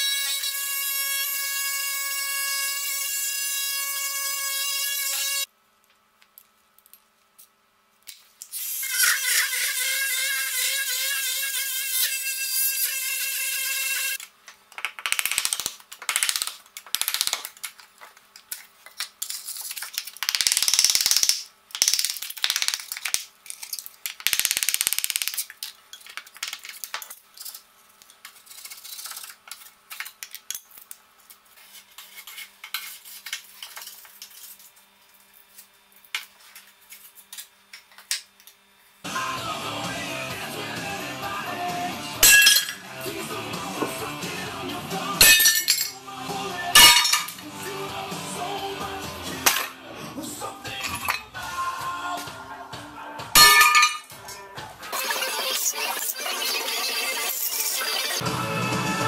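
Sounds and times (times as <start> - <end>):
oscillating multi-tool buzzing: 8.5 - 14.2, 54.9 - 58.2.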